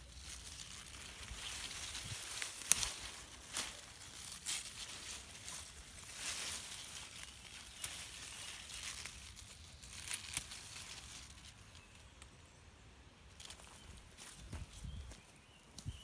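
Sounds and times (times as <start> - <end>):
leaves rustling: 0.0 - 12.6, 13.2 - 16.0
stems snapping: 0.1 - 12.3.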